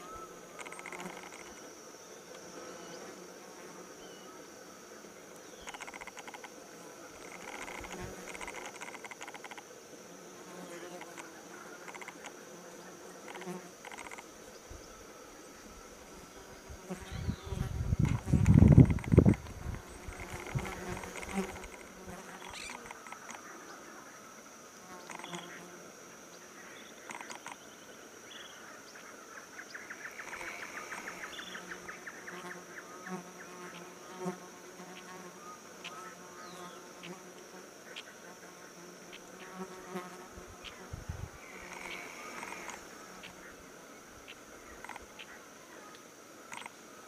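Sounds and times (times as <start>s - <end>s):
insect rapid trill: 0.0s - 47.0s
insects droning chorus: 0.0s - 47.0s.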